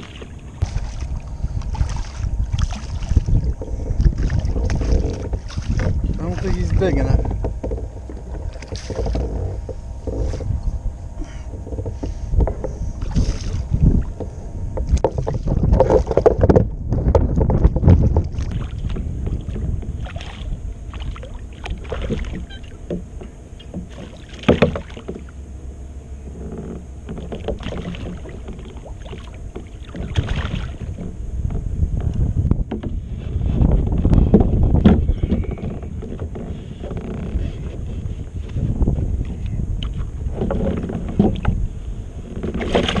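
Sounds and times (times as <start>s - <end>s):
water splashing beside a kayak: 0.0s - 9.5s, 17.4s - 25.4s, 27.0s - 31.2s, 34.1s - 43.0s
low rumble of wind and water: 0.0s - 43.0s
fish thrashing at the surface: 18.3s - 22.8s, 27.6s - 31.0s.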